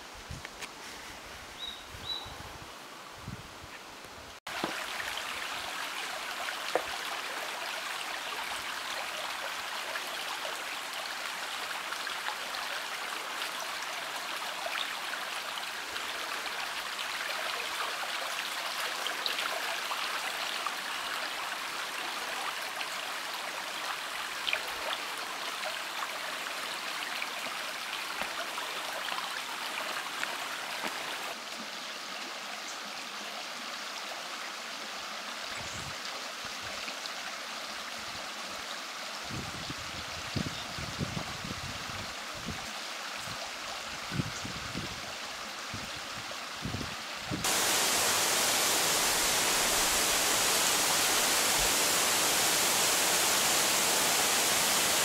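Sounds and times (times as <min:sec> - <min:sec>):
water trickling over stones: 0:04.5 - 0:31.4, 0:47.4 - 0:55.0.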